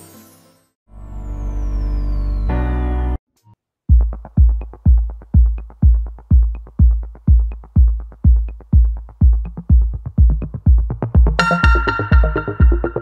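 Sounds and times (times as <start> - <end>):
electronic music with kick drum: 3.9 - 13.0.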